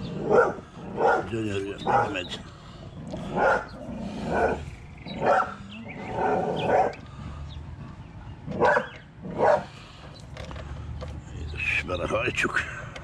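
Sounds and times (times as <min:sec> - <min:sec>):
dog barking: 0:00.1 - 0:02.3, 0:03.2 - 0:07.0, 0:08.5 - 0:09.7.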